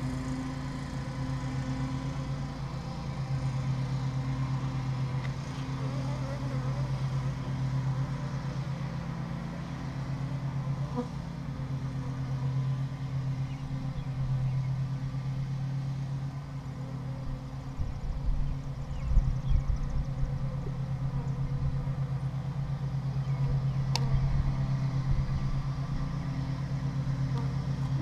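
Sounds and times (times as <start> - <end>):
bees humming: 0.0 - 15.7, 26.2 - 28.0.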